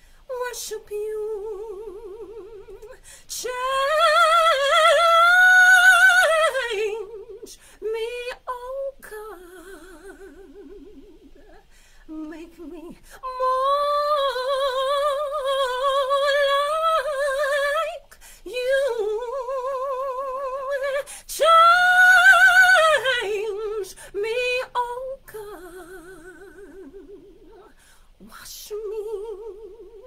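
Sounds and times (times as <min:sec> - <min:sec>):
woman singing a cappella: 0:00.0 - 0:30.0.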